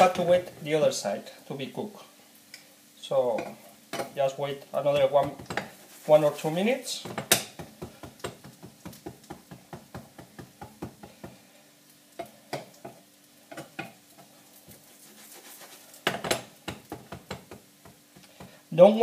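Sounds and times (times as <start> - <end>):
faint sizzle: 0.0 - 19.0
metal skimmer tapping a frying pan: 12.2 - 14.0, 16.1 - 18.0.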